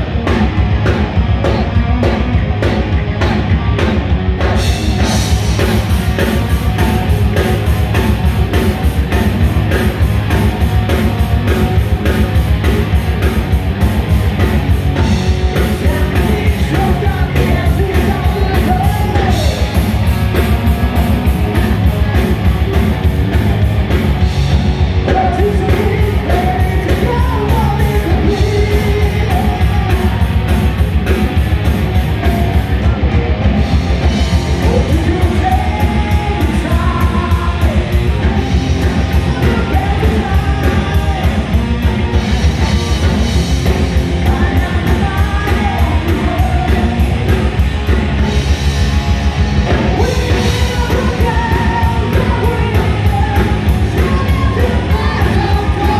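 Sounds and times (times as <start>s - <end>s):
bass guitar: 0.0s - 55.9s
distorted electric guitars: 0.0s - 55.9s
drum kit beat: 0.0s - 55.9s
person singing: 15.0s - 19.9s, 25.1s - 30.5s, 34.5s - 41.9s, 44.2s - 47.6s, 49.9s - 55.9s.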